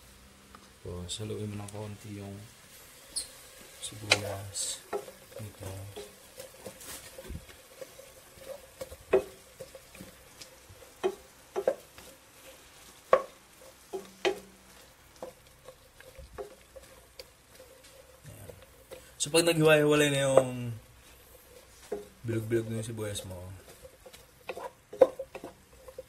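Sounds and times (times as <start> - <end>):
onions sizzling: 0.0 - 26.0
spatula stirring onions: 0.2 - 26.0
spatula knocking against pan: 10.9 - 11.8, 13.1 - 14.5.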